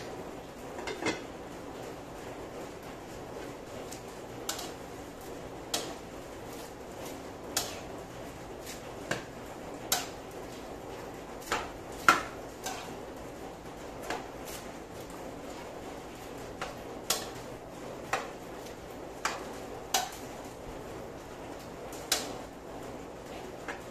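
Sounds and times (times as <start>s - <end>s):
metal utensil scraping wok: 11.5s - 13.0s.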